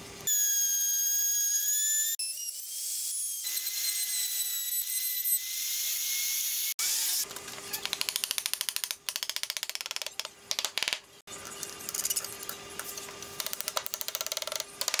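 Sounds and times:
router cutting wood whine: 0.4s - 7.3s.

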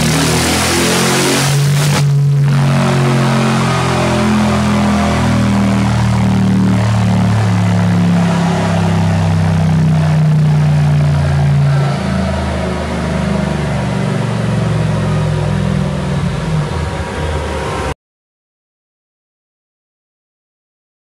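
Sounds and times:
car engine revving: 0.0s - 18.0s.

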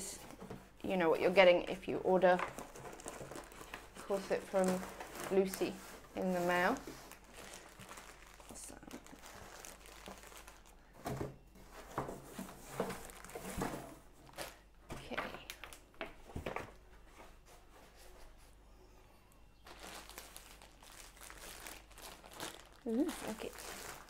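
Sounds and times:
plastic bags crinkling: 1.1s - 11.2s, 12.5s - 14.7s, 19.6s - 24.0s.

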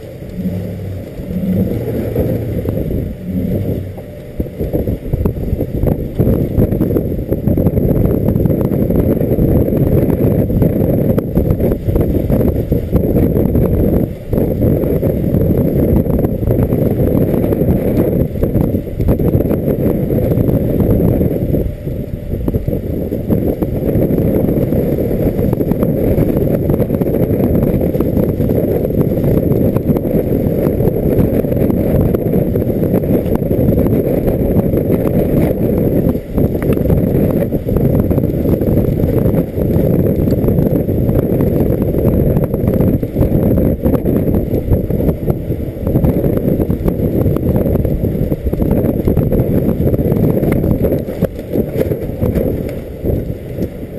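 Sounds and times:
wind and road noise rumble: 0.0s - 53.9s.

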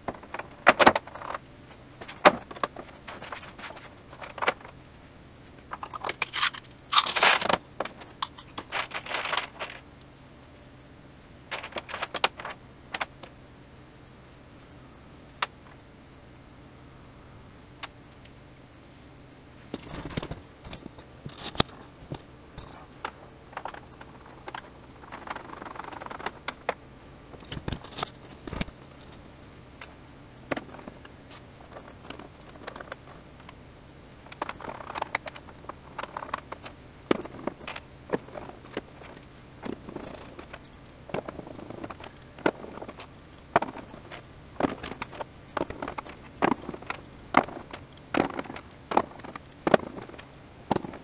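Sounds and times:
faint low hum: 0.0s - 51.0s
screwdriver clicks and rattles: 5.7s - 8.7s.

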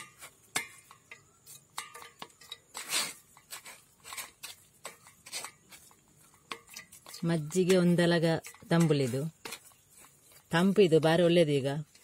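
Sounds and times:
wooden spoon scraping a strainer: 0.0s - 12.0s.

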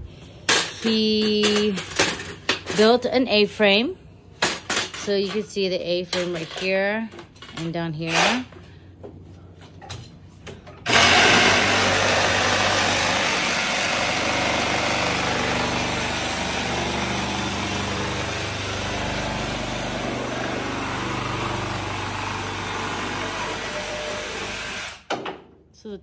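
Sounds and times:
machine rushing noise: 10.9s - 25.0s.

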